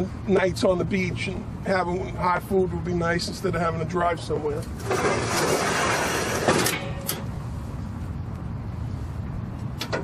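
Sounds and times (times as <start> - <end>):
metal box sliding shut with clunk: 4.8 - 7.3.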